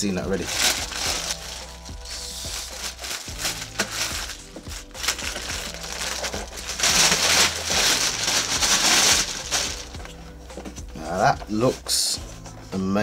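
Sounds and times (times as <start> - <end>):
plastic wrapping crinkling: 0.3 - 10.2.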